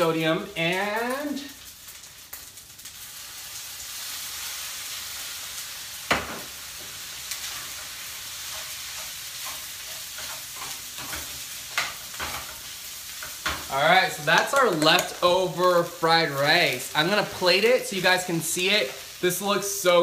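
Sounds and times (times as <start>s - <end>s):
rice sizzling in a frying pan: 0.0s - 20.0s
spatula scraping and knocking pan: 6.1s - 13.7s.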